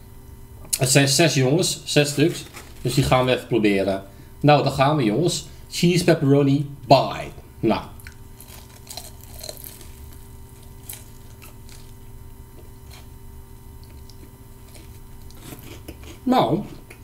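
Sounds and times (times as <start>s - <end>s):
low steady hum: 0.0s - 17.0s
short crunches: 8.0s - 13.1s
person chewing food: 8.0s - 17.0s.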